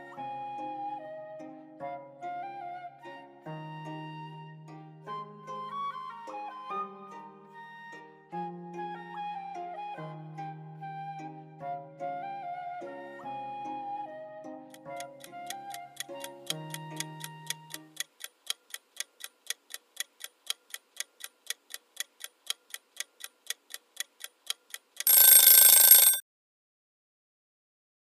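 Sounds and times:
soft flute music: 0.0 - 18.0
clock ticking: 14.7 - 26.2
loud alarm ringing: 25.1 - 26.2.

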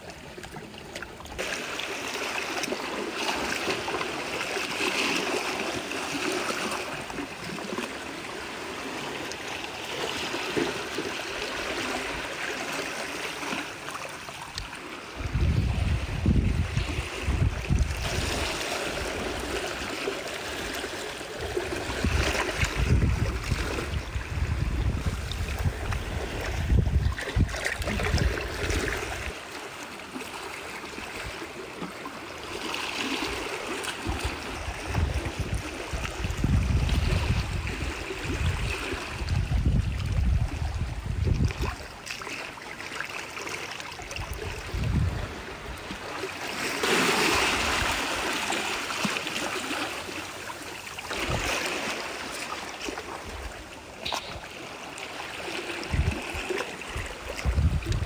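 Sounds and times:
wind gusts on microphone: 15.1 - 19.6, 21.4 - 29.3, 34.0 - 41.9, 44.2 - 46.0, 47.3 - 48.4, 51.2 - 51.7, 55.7 - 58.0.

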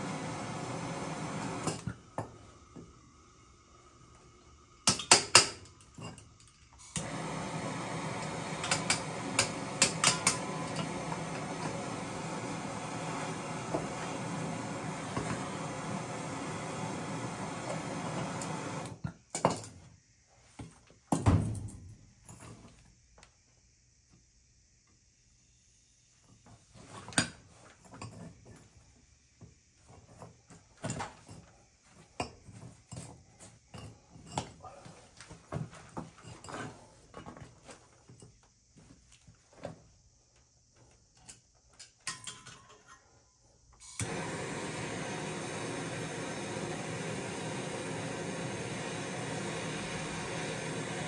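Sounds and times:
steady hiss: 0.0 - 19.0, 43.2 - 51.0
metal tools clinking and knocking: 41.2 - 43.2.

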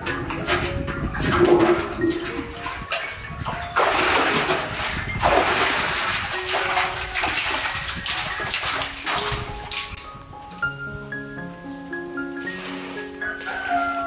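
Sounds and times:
bucket splashing into well water: 0.0 - 10.0
background music: 0.0 - 14.0.

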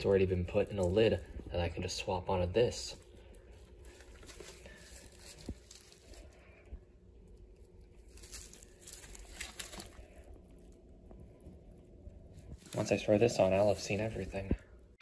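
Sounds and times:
plastic wrap crinkling: 0.0 - 14.6.

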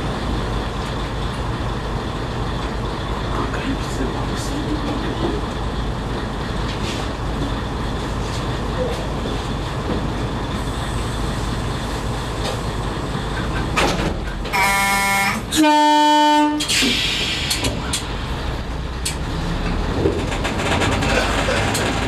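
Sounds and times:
diesel engine idling: 0.0 - 22.0
train horn blasts: 14.5 - 16.7.

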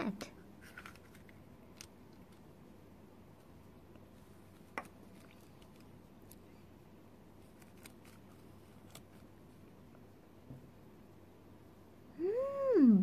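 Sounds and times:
foil wrapper crinkling: 7.4 - 9.3.

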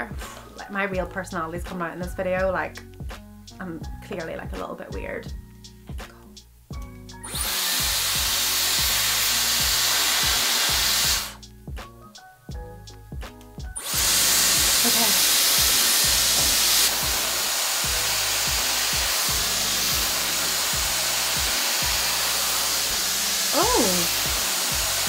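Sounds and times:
hair styler blowing air: 7.2 - 11.4, 13.8 - 25.0
hair styler switching on: 7.3 - 11.4, 13.8 - 25.0.

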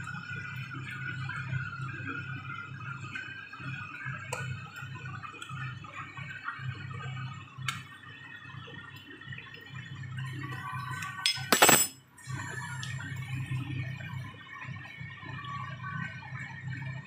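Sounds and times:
soup bubbling at a boil: 0.0 - 11.2
metal spoon clinking on pot: 11.2 - 12.0.

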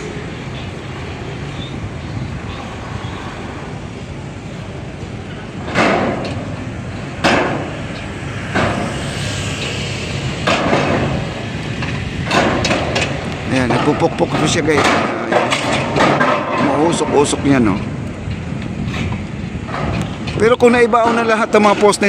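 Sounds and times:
pile hammer strikes: 5.7 - 6.4, 7.2 - 7.8, 10.4 - 11.2, 11.8 - 17.2.

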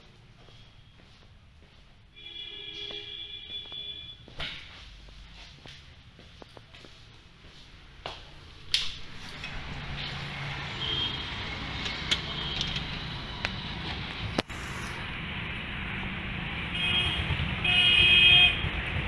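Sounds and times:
road traffic rumble: 0.0 - 19.0
car horn beep: 2.2 - 4.3, 10.7 - 11.4, 16.7 - 18.8.

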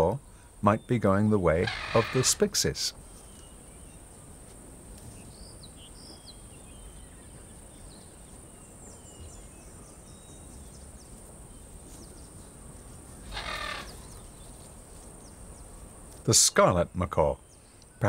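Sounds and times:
harsh bird squawk: 1.5 - 2.6, 13.2 - 14.1.

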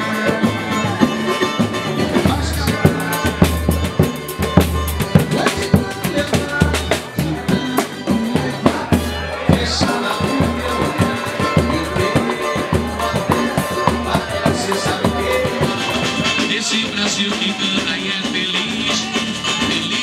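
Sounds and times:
drum kit and hand drums: 0.0 - 20.0
latin band music: 0.0 - 20.0.

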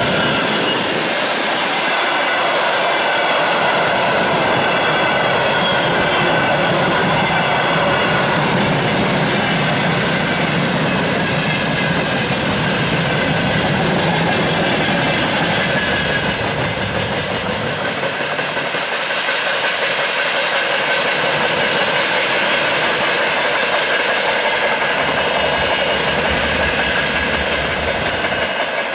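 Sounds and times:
freight train wagons rolling: 0.0 - 28.9.

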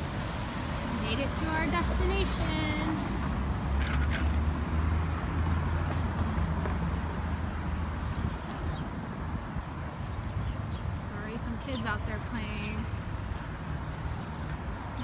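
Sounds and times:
wind rumbling on microphone: 4.4 - 15.0.

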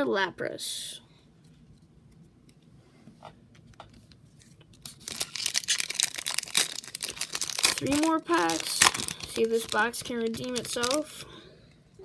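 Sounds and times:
foil wrapper crinkling: 4.4 - 11.2.

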